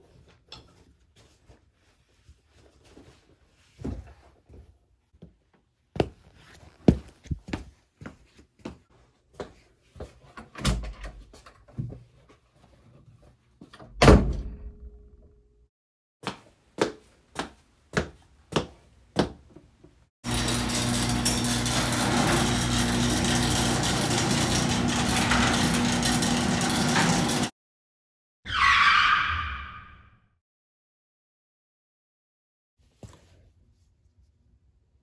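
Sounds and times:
footsteps in slippers on wood: 0:03.8 - 0:10.2, 0:16.2 - 0:19.7
door shutting with a thud: 0:13.9 - 0:14.8.

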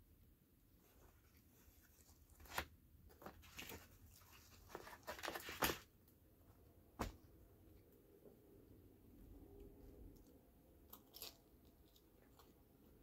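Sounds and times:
bread tearing: 0:10.9 - 0:12.5.

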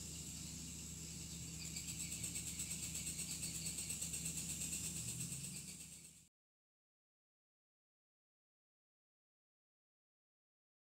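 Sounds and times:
insect chirping: 0:00.0 - 0:06.3
low steady hum: 0:00.0 - 0:06.3.

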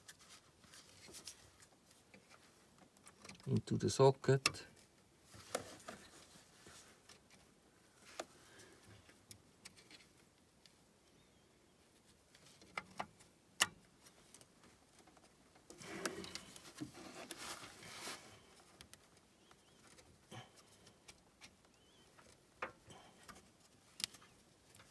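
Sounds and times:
cable rubbing and rustling: 0:00.0 - 0:03.6, 0:05.3 - 0:08.3, 0:14.0 - 0:22.4.

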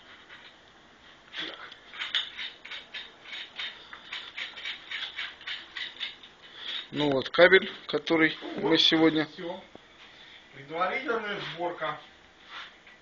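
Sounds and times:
metallic clicks and scrapes: 0:01.4 - 0:07.2.

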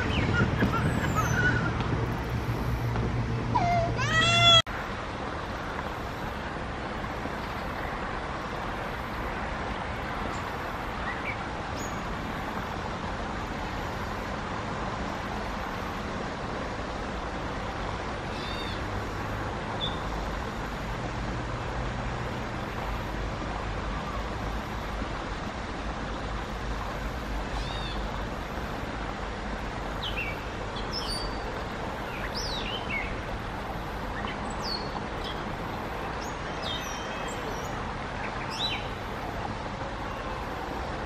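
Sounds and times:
distant road traffic hum: 0:00.0 - 0:41.0.

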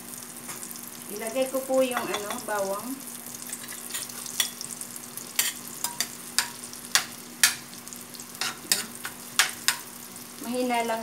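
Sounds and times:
garlic sizzling in wok: 0:00.0 - 0:11.0
spatula scraping wok: 0:03.4 - 0:04.7, 0:05.3 - 0:07.6, 0:08.3 - 0:09.9.

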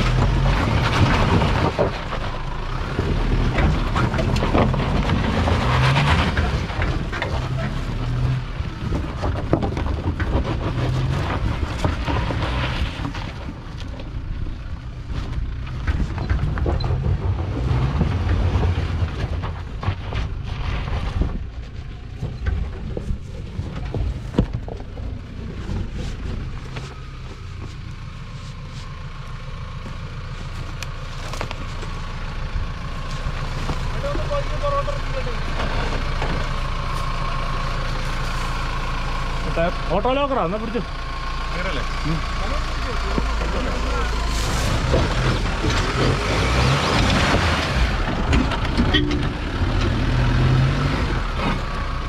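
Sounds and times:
stones knocking under tyres: 0:00.0 - 0:39.1
off-road vehicle engine revving: 0:00.0 - 0:52.0.

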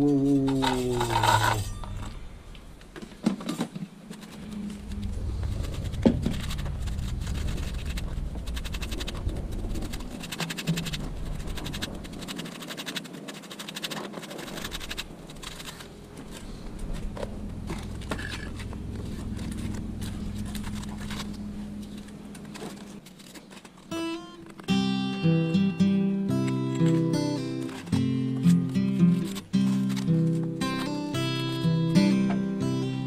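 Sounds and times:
trowel scraping wet mortar: 0:05.7 - 0:16.6.

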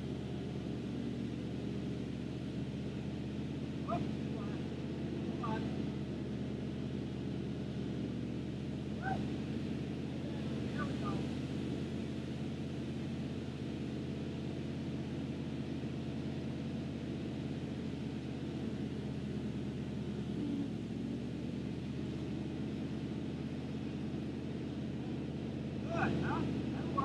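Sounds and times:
truck engine running: 0:00.0 - 0:27.0.

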